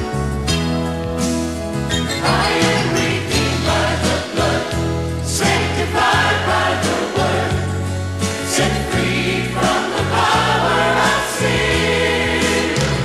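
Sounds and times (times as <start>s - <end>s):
bass line: 0.0s - 13.0s
band playing: 1.3s - 7.8s
gospel choir singing: 2.0s - 13.0s.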